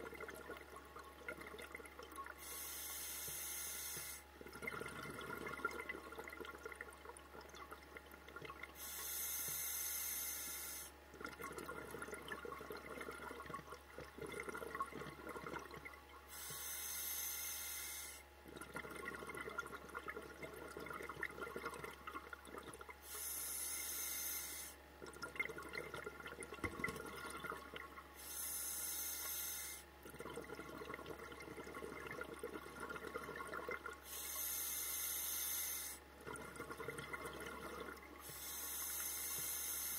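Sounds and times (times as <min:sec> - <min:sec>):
bubbling exhalation: 0:36.2 - 0:38.1.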